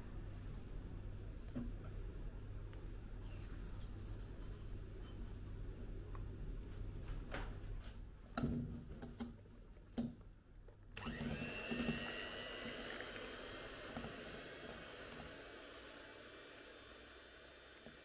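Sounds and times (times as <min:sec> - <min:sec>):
electric hand mixer whining: 0:11.0 - 0:18.0.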